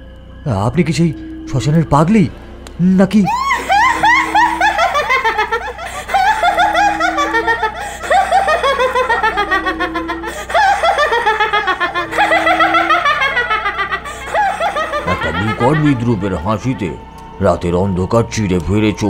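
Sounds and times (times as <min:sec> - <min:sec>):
woman cackling: 0:03.2 - 0:16.2.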